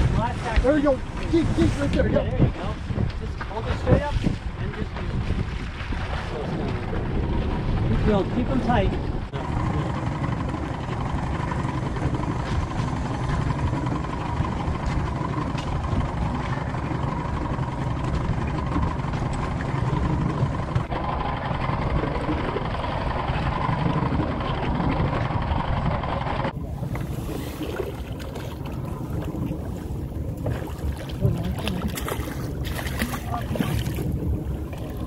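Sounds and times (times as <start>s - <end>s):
outboard motor running: 0.0s - 35.0s
water washing past hull: 0.0s - 35.0s
wind on microphone: 0.0s - 35.0s.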